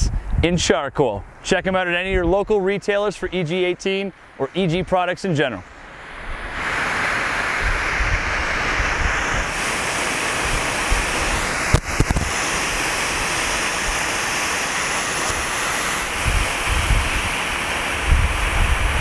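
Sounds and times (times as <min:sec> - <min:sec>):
wind rumbling on microphone: 0:00.0 - 0:02.6, 0:06.0 - 0:19.0
smoke grenade hissing: 0:06.5 - 0:19.0.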